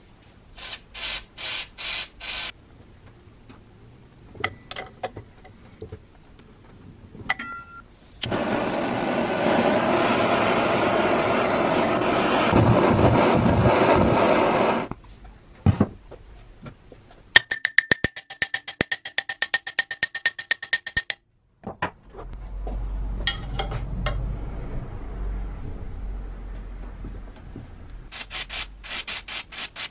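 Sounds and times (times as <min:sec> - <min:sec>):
blowtorch flame hissing: 0:08.2 - 0:14.9.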